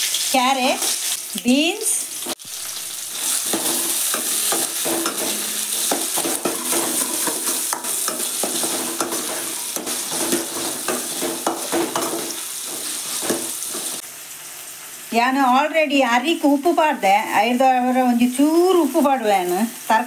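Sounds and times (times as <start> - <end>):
vegetables sizzling in hot oil: 0.0 - 20.0
ladle scraping and knocking pan: 3.2 - 14.0.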